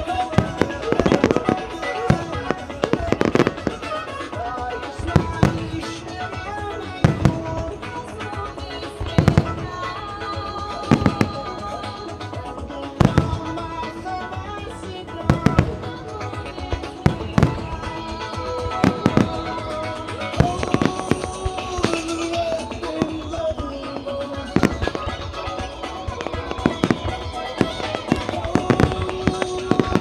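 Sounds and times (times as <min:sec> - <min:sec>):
fireworks booming: 0:00.0 - 0:30.0
music playing: 0:00.0 - 0:30.0.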